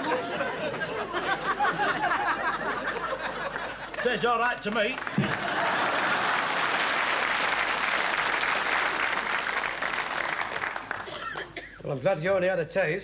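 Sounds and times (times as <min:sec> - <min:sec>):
audience applauding: 0:02.7 - 0:11.6.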